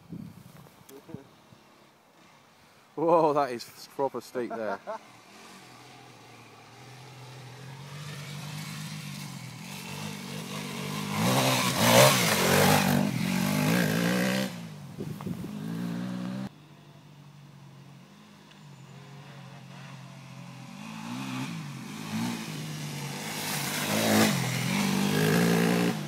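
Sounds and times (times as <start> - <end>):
motorcycle engine revving: 4.7 - 16.5, 18.0 - 26.0.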